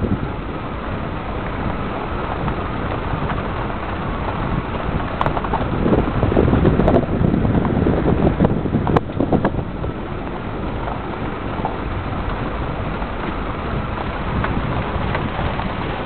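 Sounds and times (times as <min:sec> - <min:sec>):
car rumbling on dirt track: 0:00.0 - 0:16.0.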